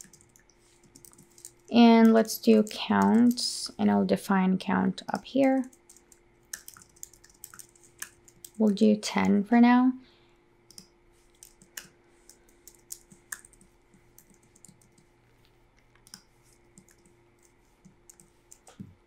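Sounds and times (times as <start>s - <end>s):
typing on computer keyboard: 0.0s - 3.5s, 5.1s - 8.8s, 10.7s - 15.1s, 16.0s - 18.8s.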